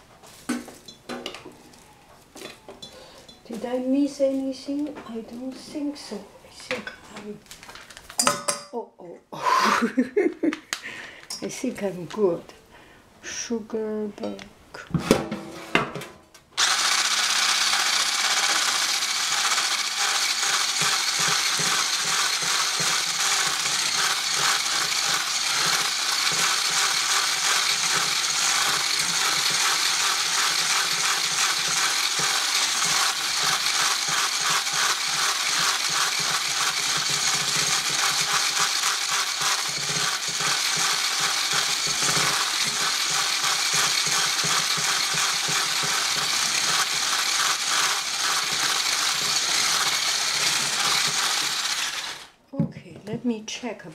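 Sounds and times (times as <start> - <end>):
electric blender running: 16.6 - 52.4.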